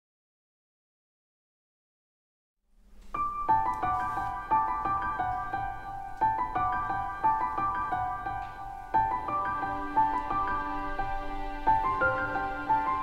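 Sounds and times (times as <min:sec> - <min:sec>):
piano tune: 0:02.8 - 0:13.0.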